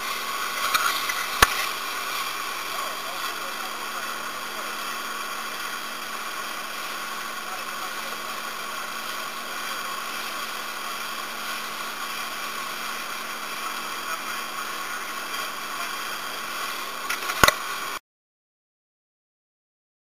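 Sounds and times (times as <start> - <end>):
motorboat engine drone: 0.0 - 18.0.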